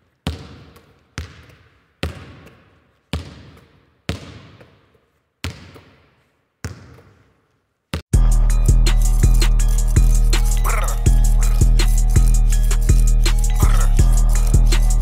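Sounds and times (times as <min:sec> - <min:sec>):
basketball bouncing on hard floor: 0:00.2 - 0:04.8, 0:05.4 - 0:07.3.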